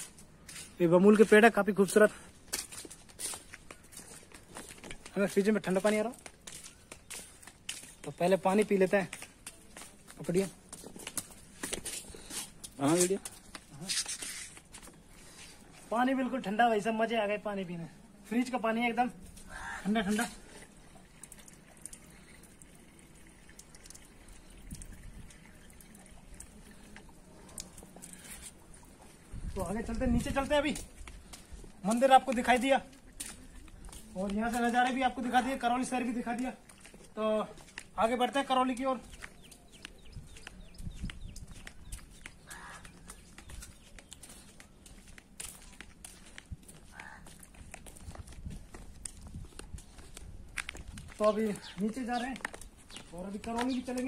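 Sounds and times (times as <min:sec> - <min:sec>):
footsteps on stone paving: 0:00.0 - 0:54.0
small birds chirping: 0:19.2 - 0:29.5, 0:36.3 - 0:48.3, 0:49.1 - 0:54.0
faint trickle of water from tap: 0:20.4 - 0:27.7
harsh rasping bird call: 0:42.5 - 0:42.8.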